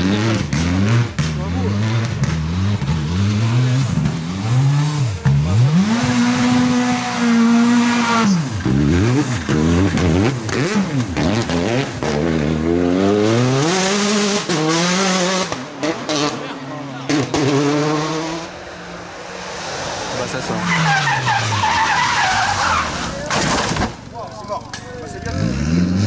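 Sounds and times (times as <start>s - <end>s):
rally car engine revving: 0.0s - 24.1s, 25.1s - 26.0s.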